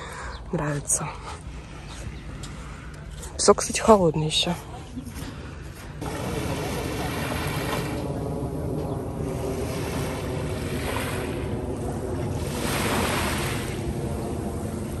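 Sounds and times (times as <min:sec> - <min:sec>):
wind rumbling on microphone: 0:04.8 - 0:15.0
sea waves on sandy beach: 0:06.0 - 0:15.0.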